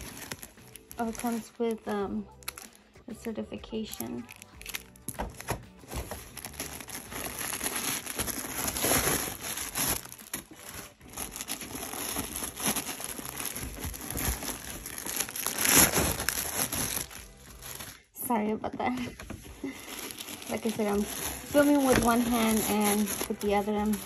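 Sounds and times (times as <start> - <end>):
tissue and plastic wrap crinkling: 0.0 - 24.0.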